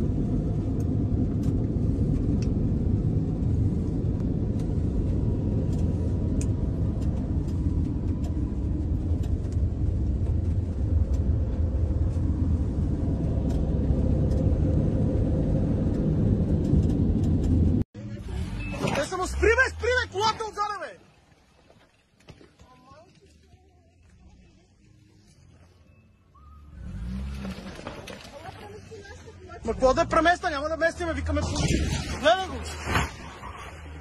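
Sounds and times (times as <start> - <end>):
road and engine rumble in cabin: 0.0 - 20.6.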